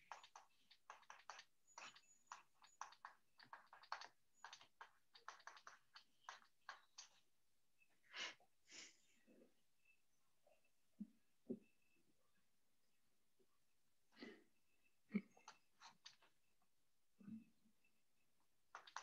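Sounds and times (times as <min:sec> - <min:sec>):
stylus scratching on tablet: 0:00.0 - 0:07.3, 0:15.3 - 0:16.4, 0:18.7 - 0:19.0.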